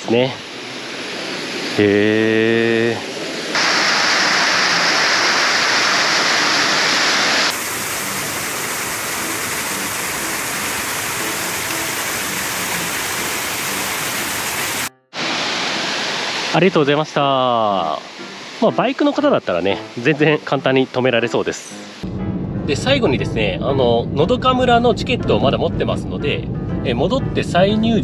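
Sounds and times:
small waterfall rushing: 0:00.0 - 0:22.0.

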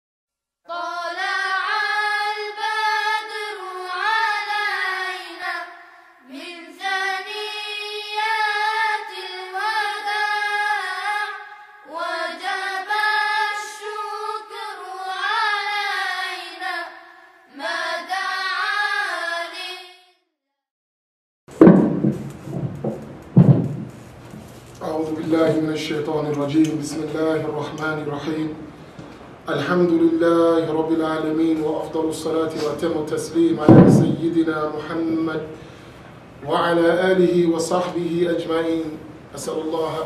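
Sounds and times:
high voice singing a chant: 0:00.7 - 0:20.0.

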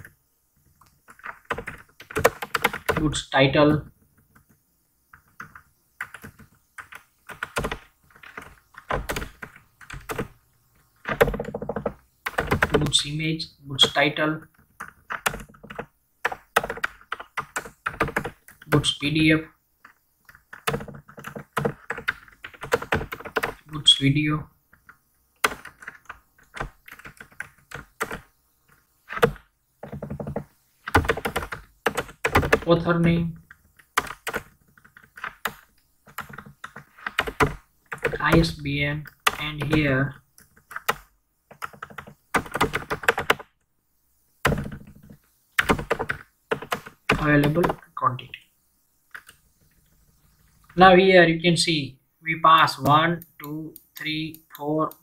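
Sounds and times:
typing on computer keyboard: 0:00.8 - 0:03.1, 0:04.2 - 0:10.3, 0:11.0 - 0:13.0, 0:13.8 - 0:19.0, 0:19.8 - 0:23.7, 0:24.7 - 0:32.7, 0:33.4 - 0:43.5, 0:44.4 - 0:47.8.

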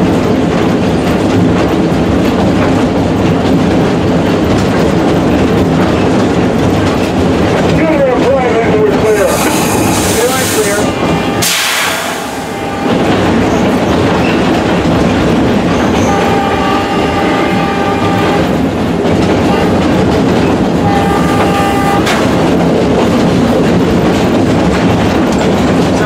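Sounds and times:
locomotive engine noise: 0:00.0 - 0:26.0
train rolling on track: 0:00.0 - 0:26.0
locomotive air horn blasts: 0:09.1 - 0:13.3, 0:16.0 - 0:18.6, 0:19.4 - 0:20.0, 0:20.8 - 0:22.4.

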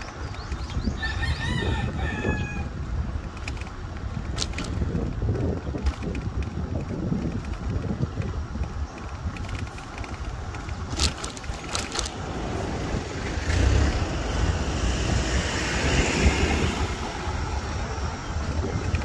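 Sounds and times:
wind on microphone: 0:00.0 - 0:19.0
sharp clicks: 0:05.8 - 0:12.2.

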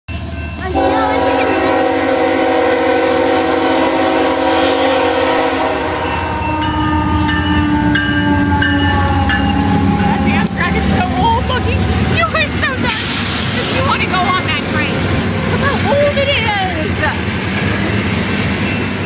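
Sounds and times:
crossing bell ringing: 0:00.1 - 0:02.4, 0:05.6 - 0:19.0
locomotive engines rumbling: 0:00.1 - 0:19.0
locomotive air horn chord: 0:00.6 - 0:10.8.

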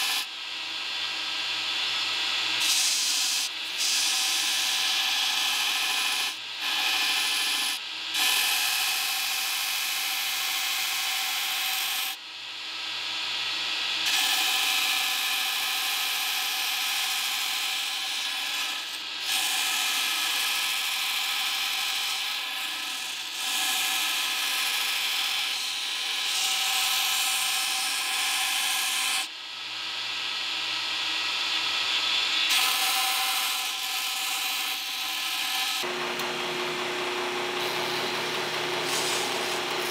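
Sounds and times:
steel rasping on grinder belt: 0:00.0 - 0:00.3, 0:01.7 - 0:12.2, 0:13.9 - 0:29.3, 0:31.2 - 0:39.9
belt grinder whine: 0:00.0 - 0:12.2, 0:13.4 - 0:39.9.

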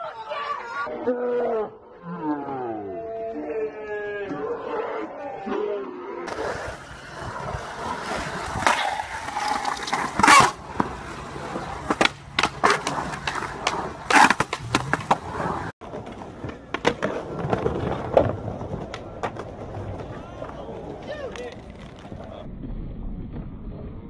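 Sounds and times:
skateboard clacking on ground: 0:06.3 - 0:22.5
skateboard wheels rolling on concrete: 0:06.3 - 0:24.0.

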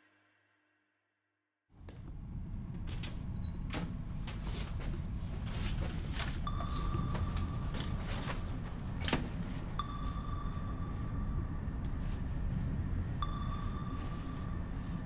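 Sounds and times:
low rumbling drone: 0:01.8 - 0:15.0
high electronic tone: 0:06.4 - 0:15.0.

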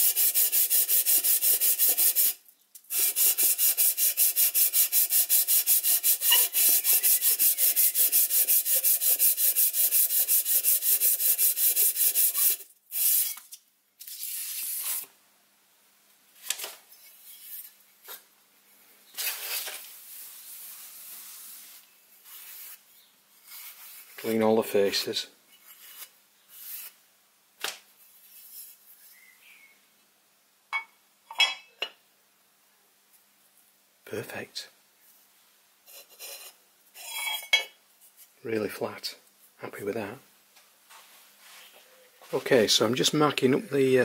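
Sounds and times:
metal rubbing on emery paper: 0:00.0 - 0:13.4, 0:19.2 - 0:24.4, 0:25.5 - 0:27.0.

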